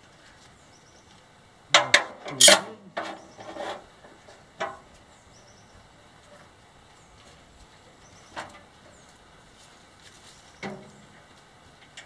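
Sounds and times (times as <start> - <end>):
wood and metal scraping and clanking: 1.8 - 4.9.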